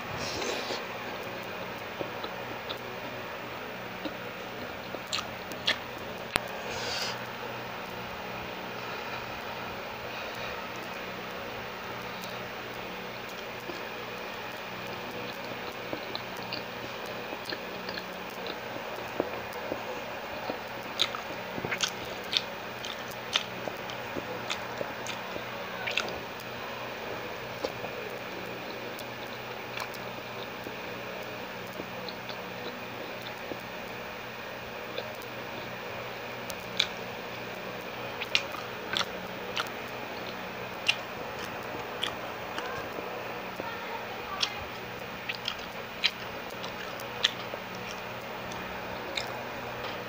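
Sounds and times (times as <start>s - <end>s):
steady low hum: 0.0s - 50.0s
wet chewing: 1.9s - 3.2s, 3.9s - 7.3s, 13.2s - 30.8s, 34.9s - 35.7s, 36.5s - 50.0s
lip-smacks and clicks: 4.9s - 6.5s, 20.4s - 25.2s, 36.5s - 37.4s, 38.2s - 42.8s, 44.4s - 50.0s.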